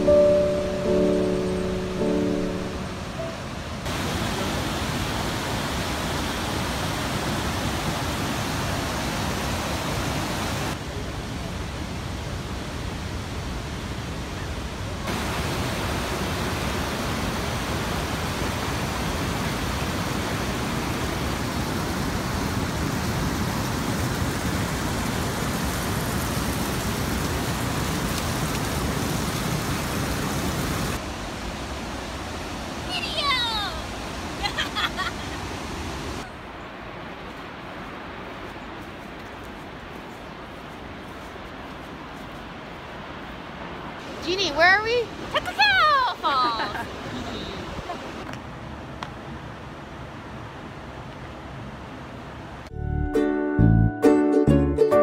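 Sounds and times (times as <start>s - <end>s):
river rushing over boulders: 0.0s - 52.7s.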